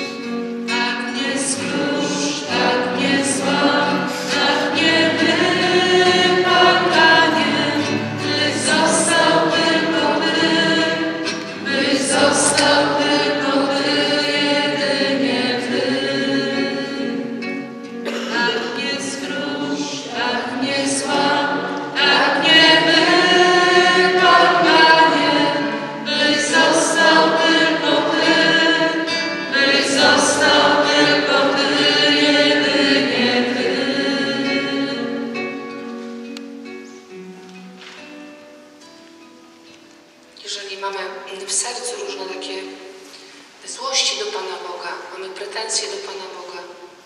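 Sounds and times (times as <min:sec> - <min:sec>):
group singing worship song: 0:00.0 - 0:35.5.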